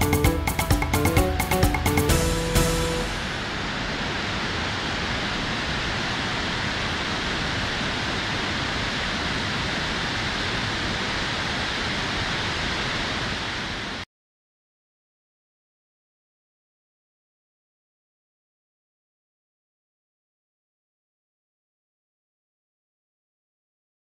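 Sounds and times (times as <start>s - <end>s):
waterfall roaring: 0.9s - 14.1s.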